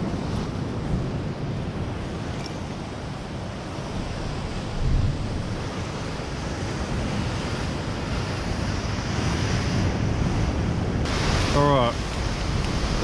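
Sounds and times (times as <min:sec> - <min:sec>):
wind buffeting microphone: 0:00.0 - 0:13.0
waves breaking against rocks: 0:10.9 - 0:13.0.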